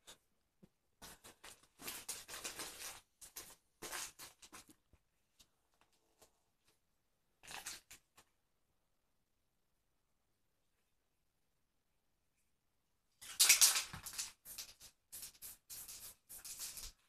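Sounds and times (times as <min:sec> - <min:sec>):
paper crinkling and rustling: 0:01.0 - 0:04.9.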